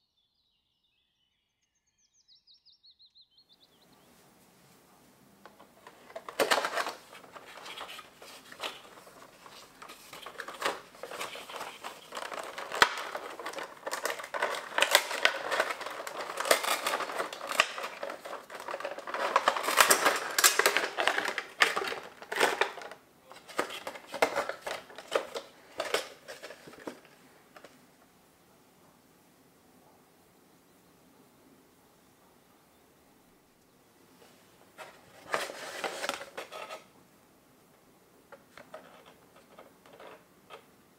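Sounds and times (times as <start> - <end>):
cardboard and plastic rustling: 4.4 - 27.8, 34.2 - 36.9, 38.3 - 40.7.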